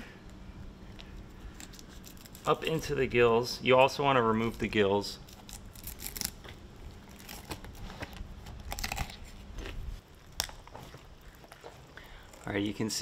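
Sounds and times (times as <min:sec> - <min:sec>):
knife crunching through fish: 0:08.5 - 0:09.8.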